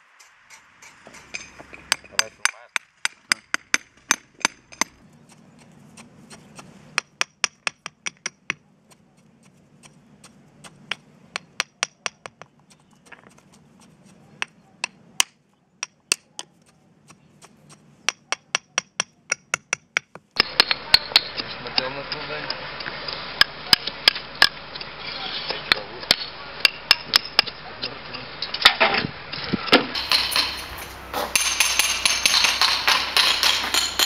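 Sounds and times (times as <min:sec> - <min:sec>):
hammer clinking on stone: 0:30.0 - 0:34.0.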